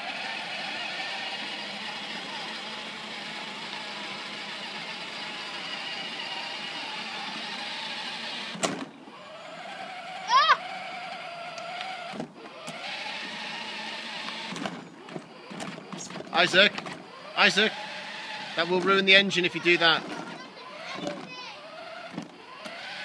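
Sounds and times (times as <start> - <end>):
electric toy motors whining: 0.0 - 23.0
child squealing: 10.2 - 10.8, 19.5 - 21.7.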